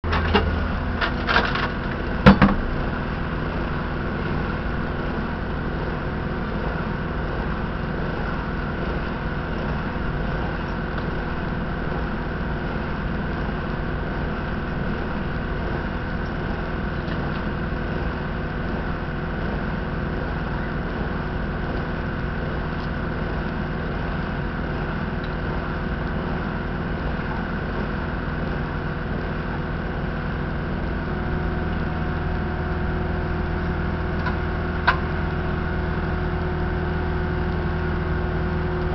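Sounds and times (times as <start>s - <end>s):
engine idling: 0.0s - 38.9s
sharp knocks: 2.2s - 2.6s.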